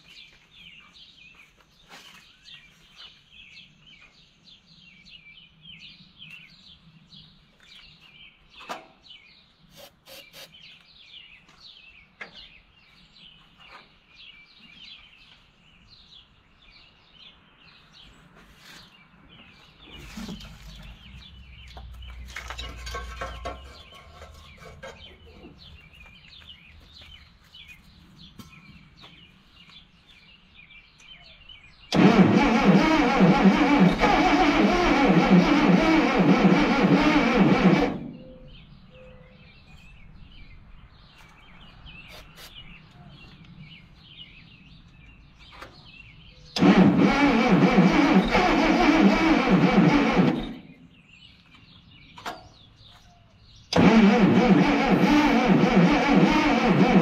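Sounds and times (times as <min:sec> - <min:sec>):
birds chirping: 0:00.0 - 0:57.0
low rumble: 0:19.8 - 0:27.2.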